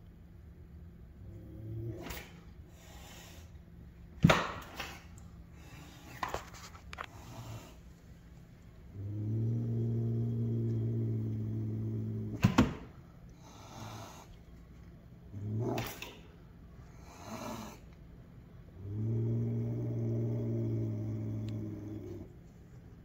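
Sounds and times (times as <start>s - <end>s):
cat growling: 1.2s - 3.4s, 8.9s - 12.5s, 13.3s - 14.6s, 15.3s - 18.0s, 18.6s - 22.4s
cat hissing: 1.9s - 3.5s, 13.4s - 14.4s, 16.9s - 17.9s.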